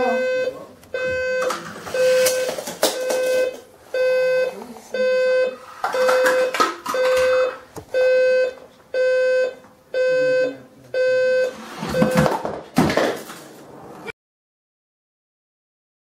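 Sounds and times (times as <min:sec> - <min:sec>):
alarm clock beeping: 0:00.0 - 0:12.3.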